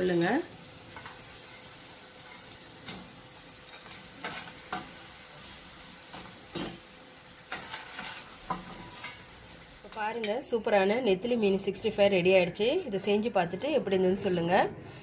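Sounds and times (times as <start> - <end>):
hot oil sizzling: 0.0 - 10.6
metal spoon scraping pan: 3.7 - 5.0, 7.5 - 9.3.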